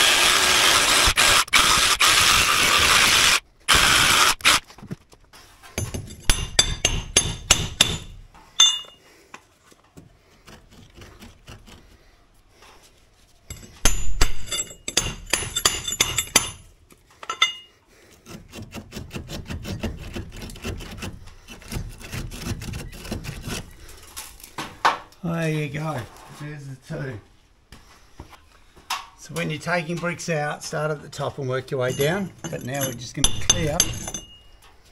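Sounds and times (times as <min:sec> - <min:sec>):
hammer striking steel chisel: 0:05.8 - 0:09.0, 0:13.5 - 0:16.6, 0:31.9 - 0:34.4.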